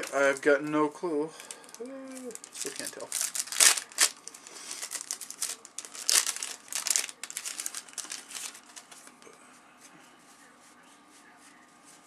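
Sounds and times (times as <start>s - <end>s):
cellophane wrapper crinkling and tearing: 0.0s - 0.5s, 1.4s - 9.2s.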